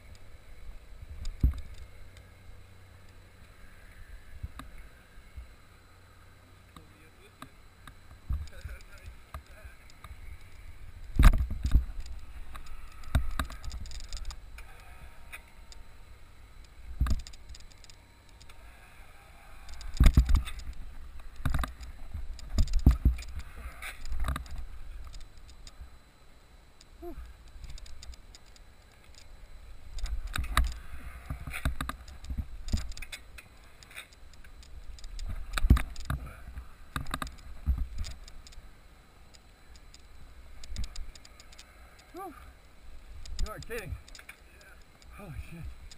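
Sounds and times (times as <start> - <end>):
wind rumble on microphone: 8.2 - 15.4, 29.9 - 33.1, 34.5 - 38.5.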